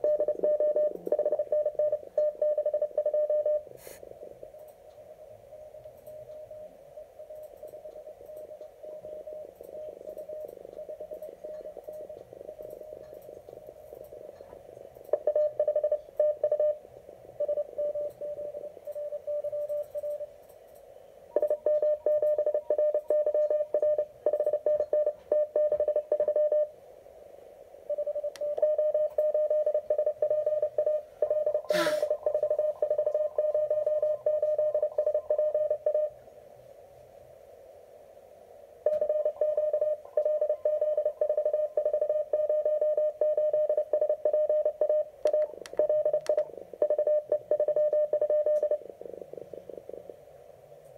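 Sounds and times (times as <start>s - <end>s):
morse code tone: 0.0s - 3.7s, 27.9s - 36.1s, 38.9s - 48.8s.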